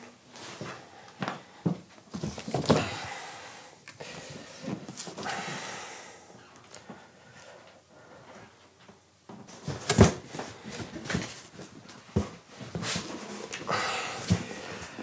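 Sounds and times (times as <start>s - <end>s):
cardboard rustling and scraping: 9.5s - 13.6s.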